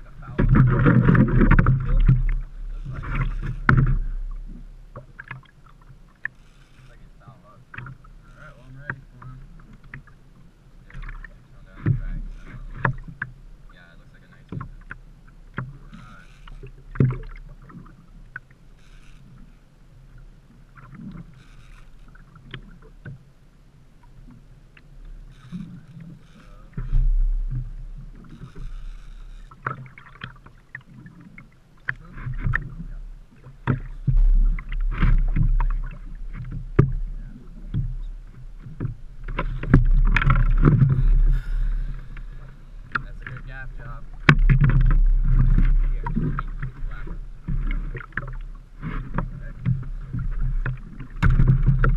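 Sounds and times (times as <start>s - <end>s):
clatter and thumps: 38.8s - 41.2s, 44.2s - 46.5s, 48.8s - 51.9s.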